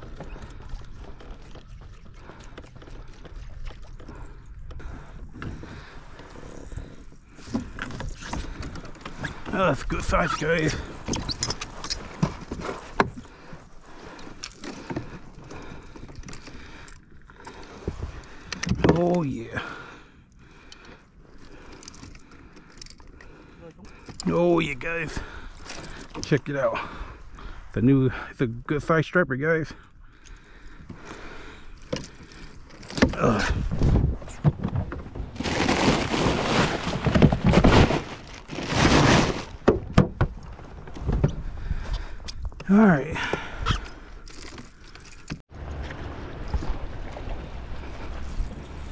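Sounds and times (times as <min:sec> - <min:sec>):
net rustling: 0:35.2 - 0:39.6
plastic bag of ice crinkling: 0:35.3 - 0:39.6.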